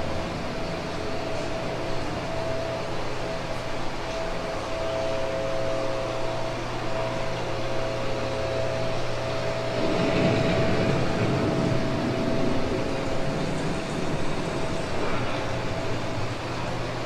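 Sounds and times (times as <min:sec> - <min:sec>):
electric hum: 0:00.0 - 0:17.0
thunder rumbling: 0:09.5 - 0:16.6.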